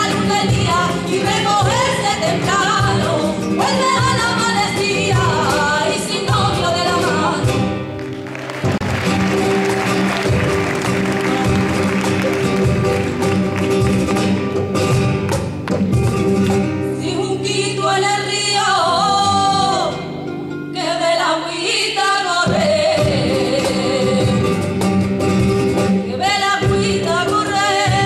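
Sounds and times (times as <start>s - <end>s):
woman singing: 0.0s - 7.8s, 16.9s - 24.7s, 26.0s - 28.0s
cajon drumming: 0.0s - 17.0s, 22.5s - 28.0s
spanish guitar: 0.0s - 28.0s.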